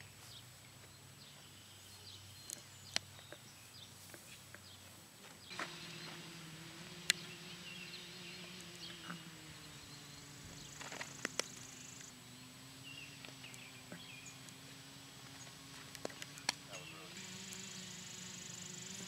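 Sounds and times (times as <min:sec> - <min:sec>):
birds chirping: 0:00.0 - 0:19.0
steady low hum: 0:05.5 - 0:19.0.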